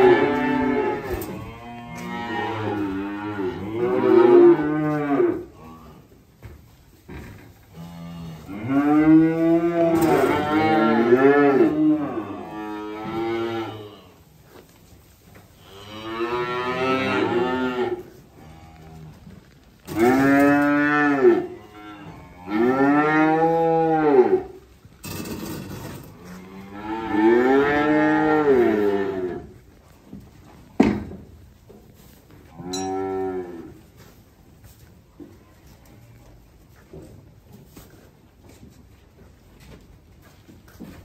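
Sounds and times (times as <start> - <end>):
cattle mooing: 0.0 - 6.0, 7.7 - 14.0, 19.9 - 24.5, 26.2 - 29.5.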